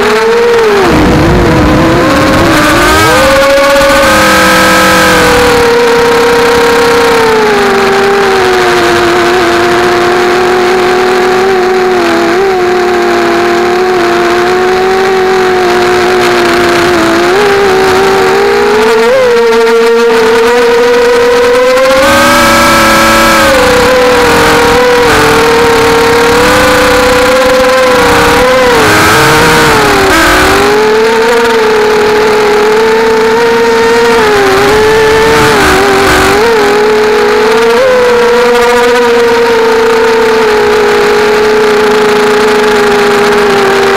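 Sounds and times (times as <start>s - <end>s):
quadcopter motors and propellers: 0.0s - 43.9s.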